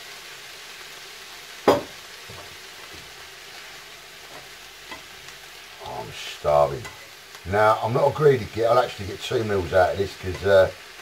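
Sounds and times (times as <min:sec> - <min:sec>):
food sizzling in a frying pan: 0:00.0 - 0:11.0
loud knock: 0:01.7 - 0:02.0.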